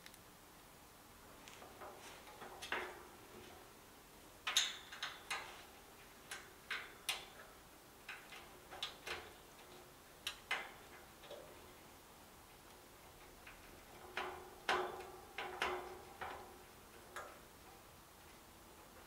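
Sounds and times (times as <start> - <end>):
clicks and taps on sheet metal: 13.4 - 17.4.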